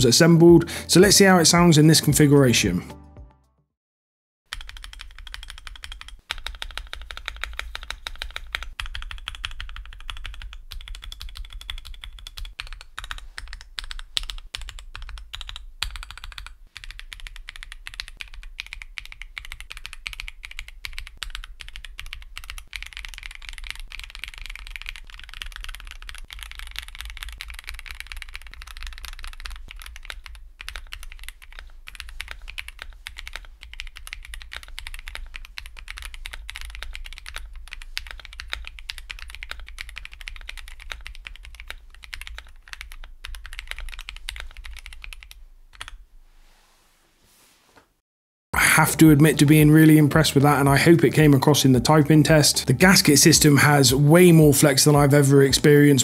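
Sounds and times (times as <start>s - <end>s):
mechanical keyboard typing: 4.5s - 46.0s.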